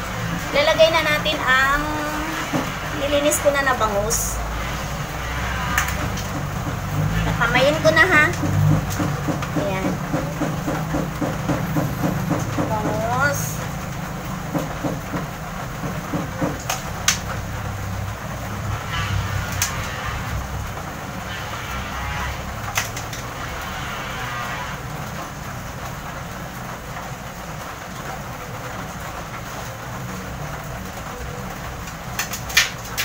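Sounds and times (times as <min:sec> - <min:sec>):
fish pieces clicking in a wok: 0:31.9 - 0:33.0.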